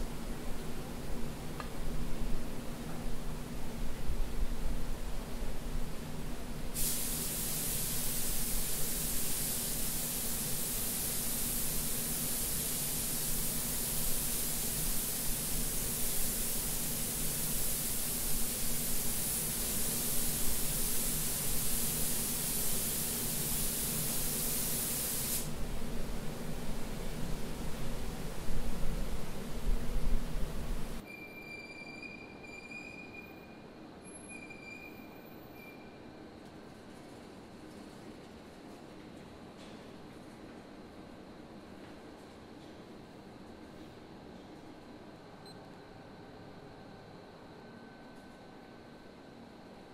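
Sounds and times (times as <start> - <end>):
spray gun hissing: 6.8 - 25.6
steady low hum: 25.5 - 31.0.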